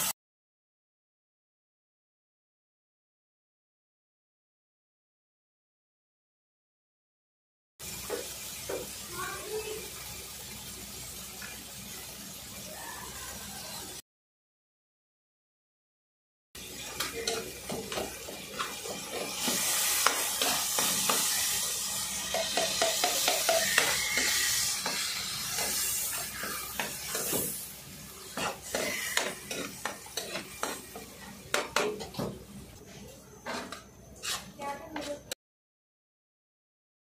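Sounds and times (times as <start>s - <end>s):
food frying sizzle: 7.8s - 14.0s, 16.6s - 35.3s
ladle scraping metal wok: 22.4s - 32.2s, 33.5s - 35.2s.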